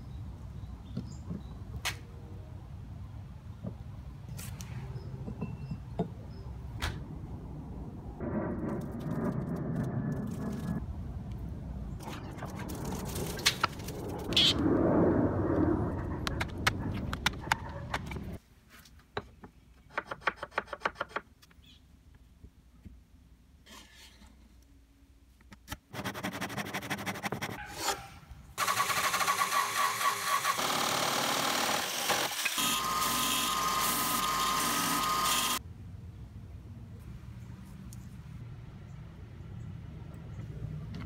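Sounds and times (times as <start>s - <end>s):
jigsaw cutting wood: 28.6s - 35.6s.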